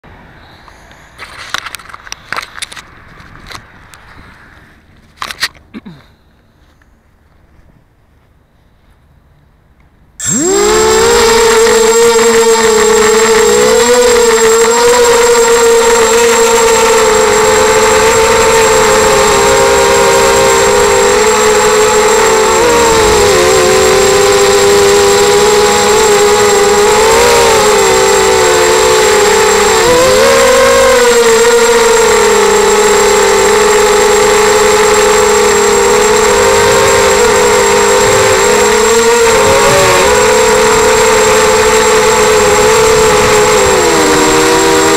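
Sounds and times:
drone motors and propellers whining: 0:10.2 - 0:44.9
thin high steady tone: 0:10.2 - 0:44.9.

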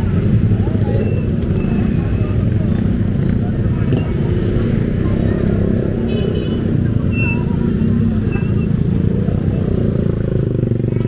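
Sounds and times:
traffic engines rumbling: 0:00.0 - 0:11.0.

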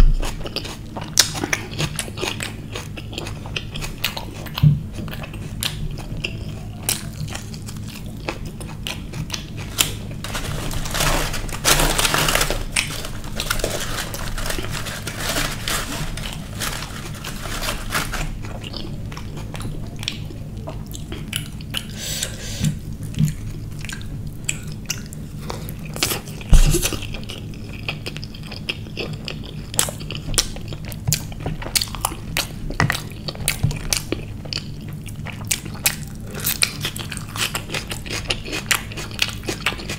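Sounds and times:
man chewing and crunching food: 0:00.0 - 0:39.9
steady low hum: 0:00.0 - 0:39.9
bread tearing: 0:09.6 - 0:18.9.

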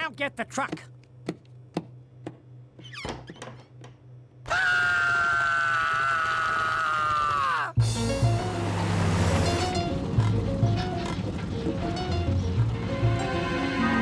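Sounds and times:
cartoon dog screaming: 0:04.5 - 0:07.8.

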